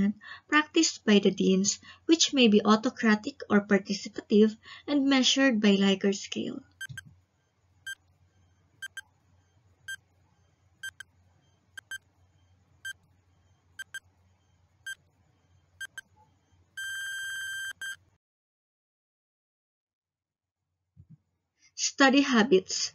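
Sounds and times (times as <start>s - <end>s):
countdown timer beeping: 8.8s - 9.0s, 10.8s - 11.0s, 11.8s - 12.0s, 13.8s - 14.0s, 15.8s - 16.0s.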